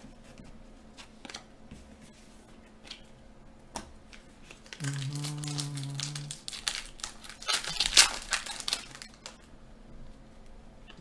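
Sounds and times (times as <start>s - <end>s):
foil wrapper crinkling: 4.5s - 9.5s.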